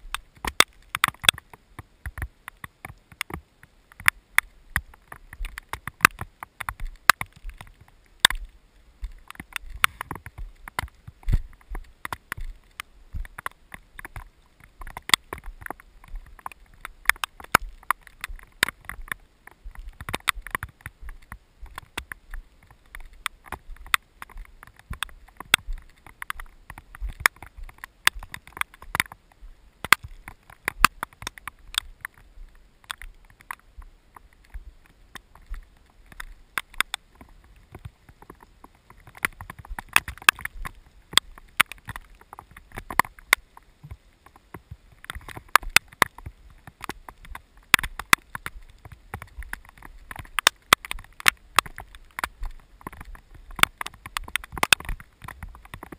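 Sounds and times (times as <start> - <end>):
sharp clicks and knocks: 0.0 - 29.2, 29.8 - 55.9.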